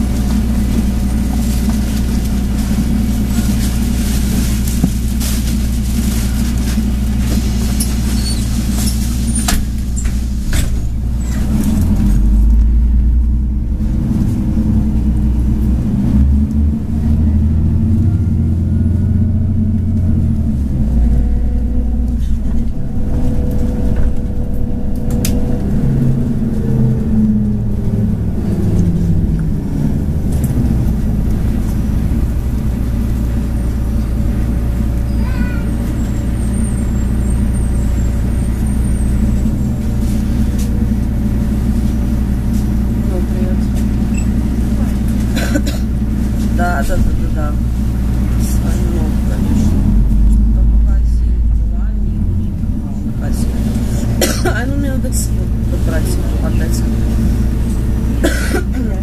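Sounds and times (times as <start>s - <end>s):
bus engine rumble: 0.0s - 59.0s
rattles and clicks: 19.6s - 33.4s.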